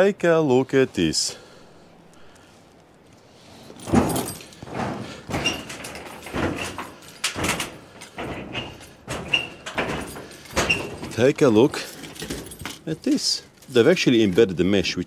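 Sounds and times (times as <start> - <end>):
footsteps on metal roof: 3.5 - 13.6.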